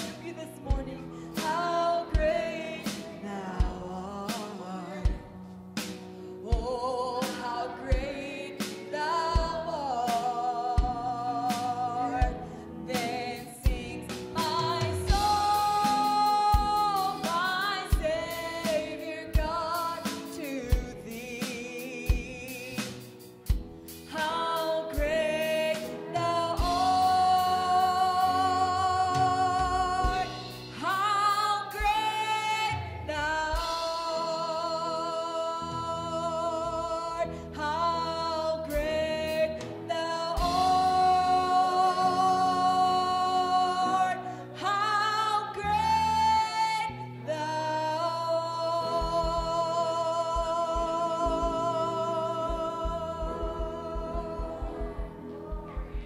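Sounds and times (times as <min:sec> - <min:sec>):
woman singing a hymn: 0:00.0 - 0:05.6, 0:06.4 - 0:56.0
drum kit beat: 0:00.0 - 0:34.3, 0:38.7 - 0:42.7, 0:49.0 - 0:56.0
acoustic guitar: 0:00.0 - 0:56.0
piano: 0:00.0 - 0:56.0
electric bass: 0:13.7 - 0:16.9.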